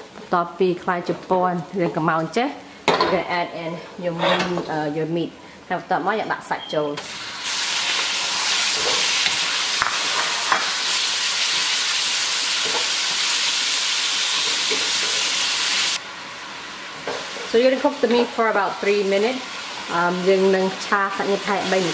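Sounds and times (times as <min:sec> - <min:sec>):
spatula scraping a pan: 0:04.1 - 0:04.6
meat sizzling in a wok: 0:07.0 - 0:21.9.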